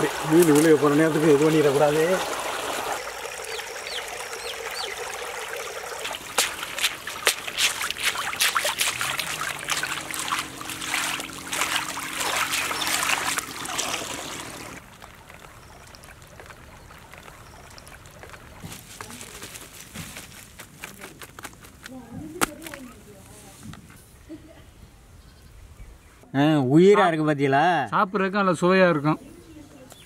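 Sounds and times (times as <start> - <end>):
water splashing and trickling: 0.0 - 21.1
fish flapping against wicker: 6.0 - 14.0, 14.8 - 23.0.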